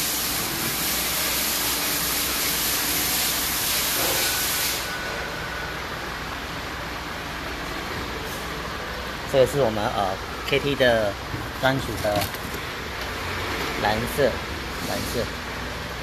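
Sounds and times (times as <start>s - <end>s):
steady hiss: 0.0s - 5.4s
workshop background: 0.0s - 16.0s.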